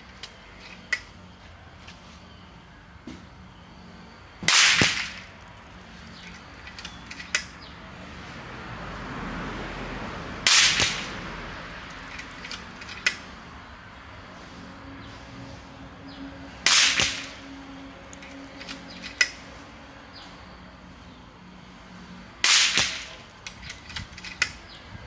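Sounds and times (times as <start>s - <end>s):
air rifle shots: 4.4s - 5.4s, 10.4s - 12.2s, 16.6s - 17.5s, 22.4s - 23.3s.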